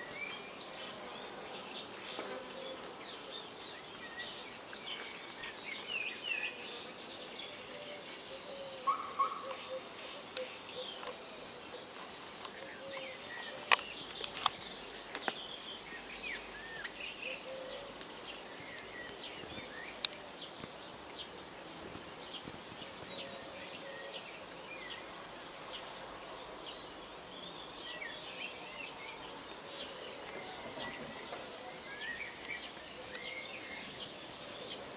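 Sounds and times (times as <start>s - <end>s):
small birds chirping: 0.0s - 34.9s
steady outdoor hiss: 0.0s - 34.9s.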